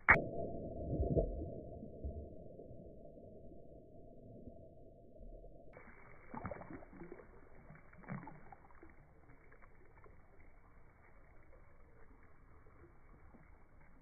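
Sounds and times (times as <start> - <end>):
water splashing on concrete: 5.8 - 14.0.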